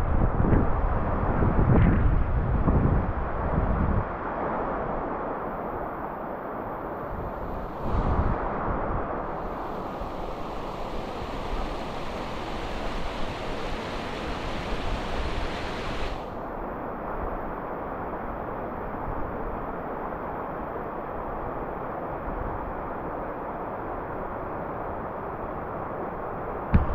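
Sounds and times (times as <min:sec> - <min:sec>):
river water rushing: 0:06.8 - 0:16.6.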